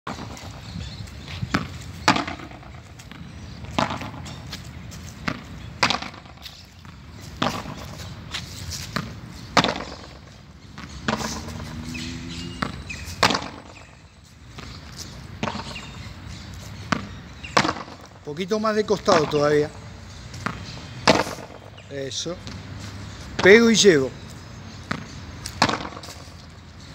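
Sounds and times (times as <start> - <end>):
padel ball knocks: 1.5 - 2.8, 3.8 - 4.2, 5.2 - 6.4, 9.0 - 10.2, 10.8 - 11.6, 12.6 - 13.8, 16.9 - 18.1, 20.4 - 21.7, 24.9 - 26.2.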